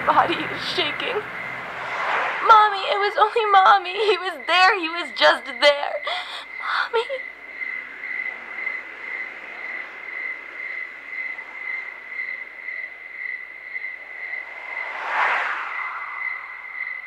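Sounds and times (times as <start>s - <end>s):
rush of noise: 1.0s - 3.3s, 7.5s - 17.0s
high pulsing chirring tone: 7.2s - 17.0s.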